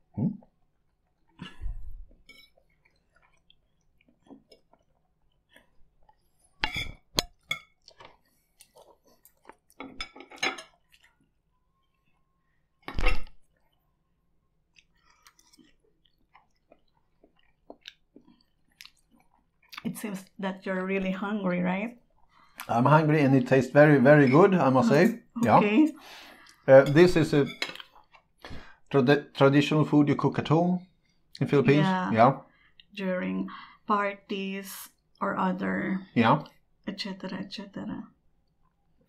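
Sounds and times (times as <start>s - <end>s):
person chewing: 0.4s - 19.9s, 26.3s - 26.8s, 27.7s - 28.8s
forks clinking on ceramic plates: 9.8s - 10.8s.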